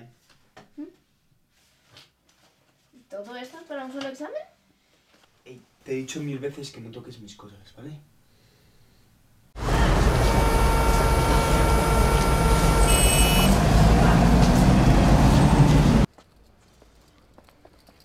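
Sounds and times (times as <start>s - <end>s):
city street traffic: 9.6s - 16.1s
engine rising in pitch: 9.6s - 16.1s
high-pitched squeal: 9.6s - 16.1s.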